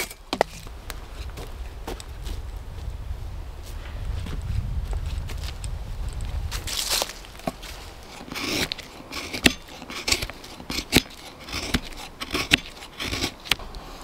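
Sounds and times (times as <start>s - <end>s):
wind on microphone: 0.6s - 10.3s
knife scraping wood: 7.4s - 13.6s.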